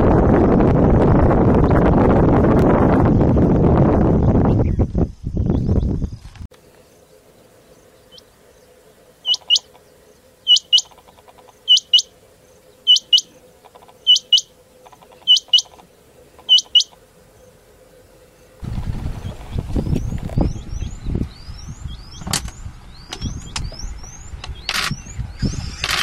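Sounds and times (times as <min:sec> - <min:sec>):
faint steady hum: 0:06.5 - 0:24.6
quail two-note call: 0:16.4 - 0:17.0.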